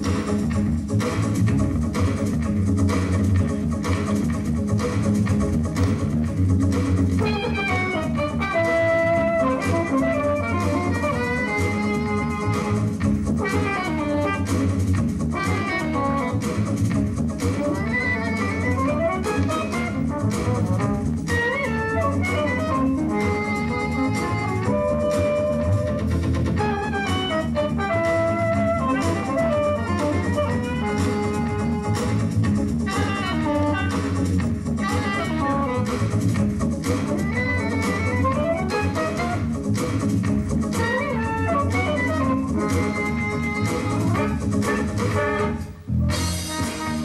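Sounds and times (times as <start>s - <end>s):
bass line: 0.0s - 47.0s
drums: 0.0s - 47.0s
horn melody: 7.2s - 16.6s, 17.6s - 36.2s, 37.2s - 39.6s, 40.7s - 47.0s.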